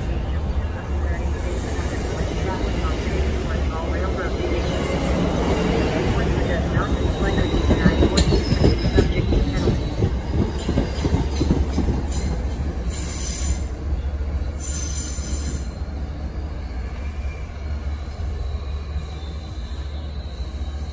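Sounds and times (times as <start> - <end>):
train low rumble: 0.0 - 20.9
train wheels knocking over rail joints: 7.0 - 13.1.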